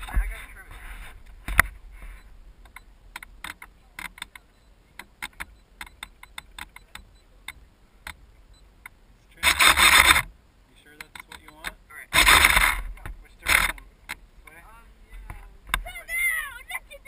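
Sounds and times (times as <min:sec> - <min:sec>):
clicks and taps of handling: 0:11.0 - 0:11.8.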